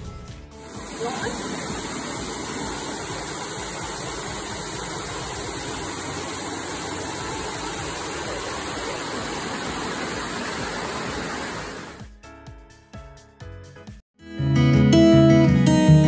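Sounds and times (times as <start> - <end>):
water cascading over rocks: 0.6 - 12.0.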